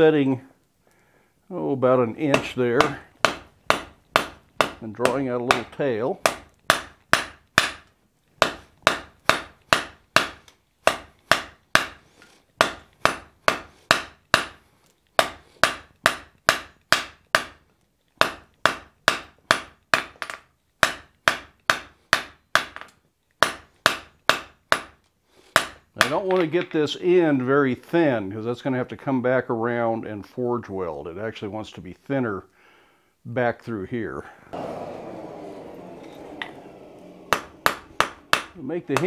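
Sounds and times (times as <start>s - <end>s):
hammer striking iron on anvil: 2.4s - 7.8s, 8.4s - 12.0s, 37.3s - 39.0s.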